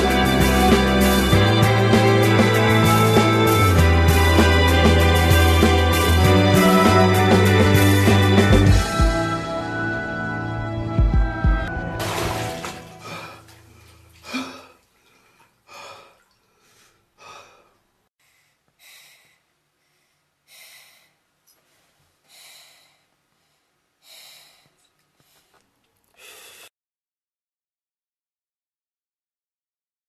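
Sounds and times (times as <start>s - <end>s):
music: 0.0s - 13.8s
man breathing heavily: 13.0s - 25.6s, 26.2s - 26.7s.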